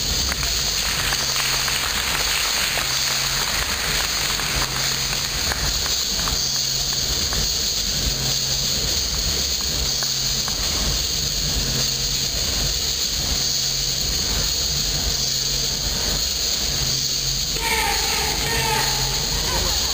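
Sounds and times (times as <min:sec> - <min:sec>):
low hum: 0:00.0 - 0:19.9
steady hiss: 0:00.0 - 0:19.9.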